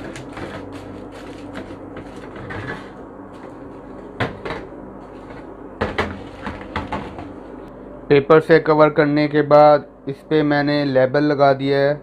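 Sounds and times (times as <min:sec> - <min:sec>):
paper rustling and tapping: 0:00.0 - 0:07.4
steady low hum: 0:00.0 - 0:12.0.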